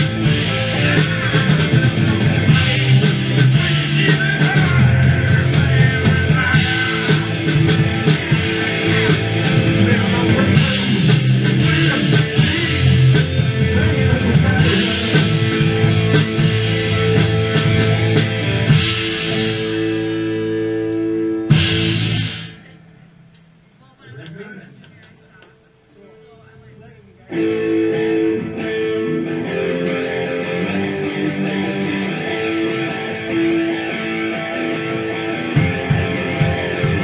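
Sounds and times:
live rock band playing: 0:00.0 - 0:22.8, 0:27.3 - 0:37.0
drum kit: 0:00.0 - 0:22.9, 0:32.2 - 0:37.0
electric guitar: 0:00.0 - 0:23.3, 0:27.3 - 0:37.0.

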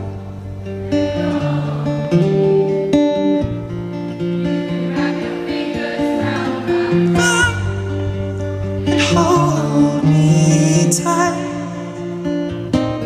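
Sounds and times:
acoustic guitar chords: 0:00.0 - 0:13.0
person singing: 0:00.9 - 0:02.9, 0:04.8 - 0:12.1.

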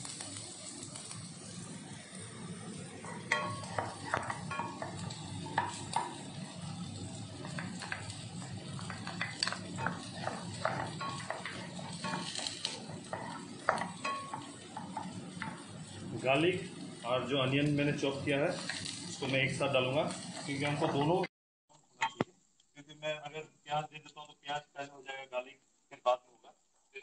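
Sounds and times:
garlic frying in oil: 0:00.0 - 0:22.5
wooden spatula scraping pan: 0:03.0 - 0:06.3, 0:07.4 - 0:16.2.

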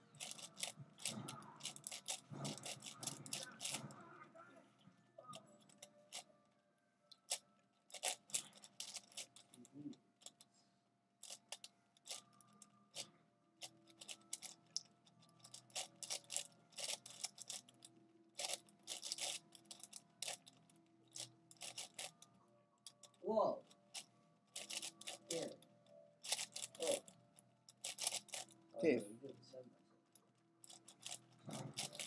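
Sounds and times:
puzzle cube plastic clicks: 0:00.2 - 0:04.0, 0:07.1 - 0:09.6, 0:11.2 - 0:17.8, 0:18.4 - 0:22.1, 0:23.9 - 0:25.6, 0:26.2 - 0:27.1, 0:27.7 - 0:28.5.

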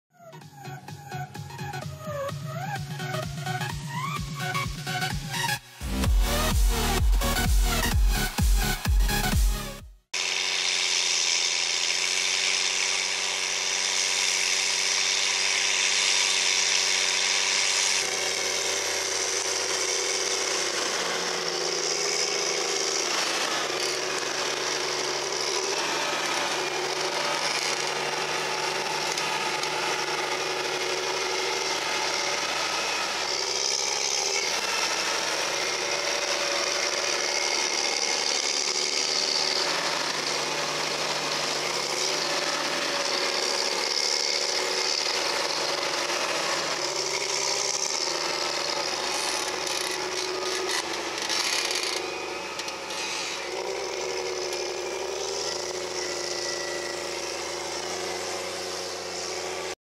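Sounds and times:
tractor diesel engine under load: 0:00.8 - 0:59.8
high whine: 0:02.8 - 0:43.8.

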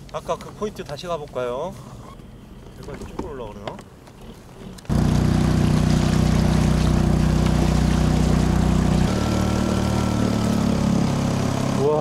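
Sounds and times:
small outboard motor running: 0:04.8 - 0:12.0.

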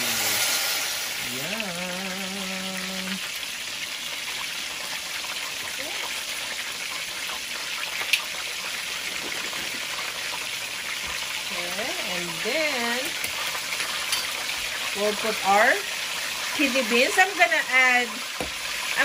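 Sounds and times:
short hummed voice tone: 0:01.2 - 0:03.2.

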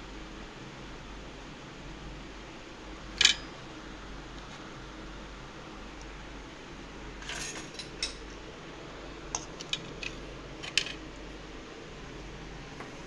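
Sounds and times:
fan humming: 0:00.0 - 0:13.0
metal utensil clinking on plate: 0:07.2 - 0:08.2.

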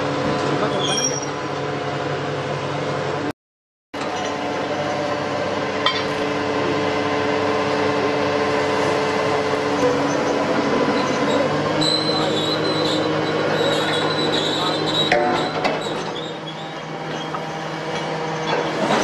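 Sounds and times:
diesel engine drone: 0:00.0 - 0:03.3, 0:04.0 - 0:19.0.

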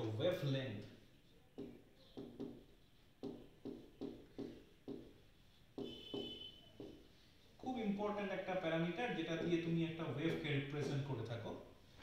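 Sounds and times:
marker tapping on whiteboard: 0:01.5 - 0:07.2, 0:09.3 - 0:09.7
marker squeak: 0:05.8 - 0:07.2.

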